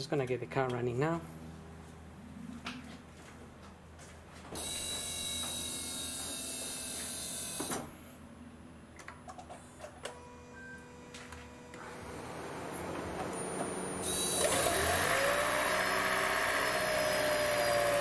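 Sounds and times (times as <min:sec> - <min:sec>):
electric whirring buzz: 0:04.5 - 0:08.2, 0:10.1 - 0:18.0.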